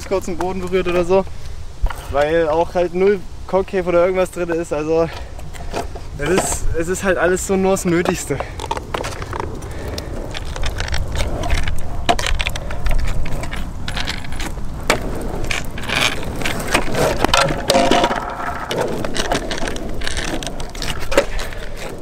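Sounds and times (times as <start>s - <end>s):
longboard wheels rumbling on asphalt: 0.0s - 22.0s
board rattling and clicking: 8.0s - 22.0s.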